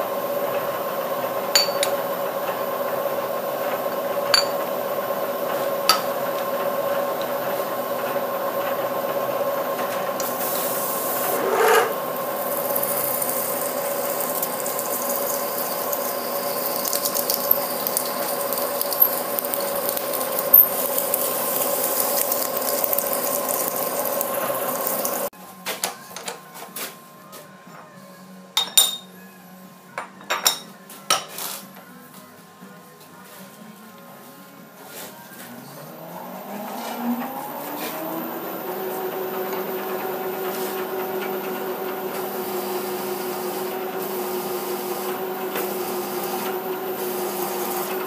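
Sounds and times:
milling machine spindle hum: 0:00.0 - 0:25.3, 0:35.3 - 0:48.0
drill bit cutting metal hiss: 0:10.2 - 0:25.3.

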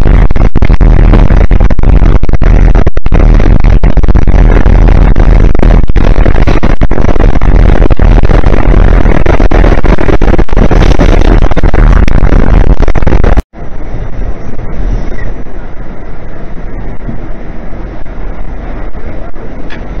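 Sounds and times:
subway car rumble and rattle: 0:13.5 - 0:20.0.

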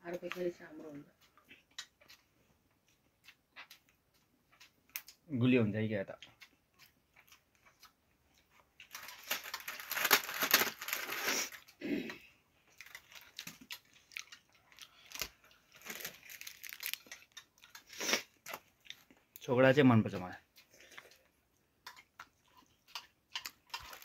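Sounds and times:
snack packaging crinkling: 0:08.5 - 0:11.8, 0:12.6 - 0:19.4, 0:21.9 - 0:24.0.

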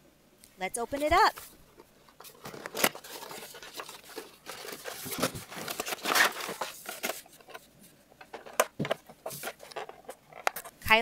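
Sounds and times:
packaging crinkling and tearing: 0:02.2 - 0:07.7.

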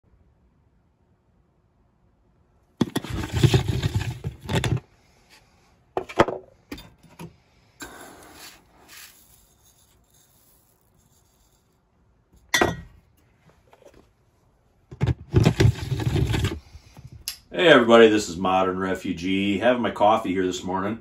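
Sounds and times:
scraping and rustling: 0:02.8 - 0:06.2, 0:14.9 - 0:17.1.

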